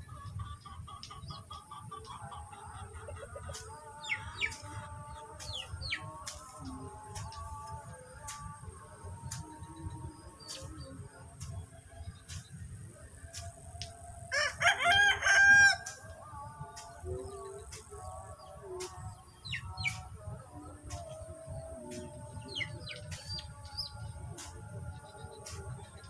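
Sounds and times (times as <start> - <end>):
steady high-pitched hiss: 0.0 - 26.0
small birds chirping: 0.2 - 14.2, 15.7 - 26.0
rooster crowing: 14.3 - 16.0.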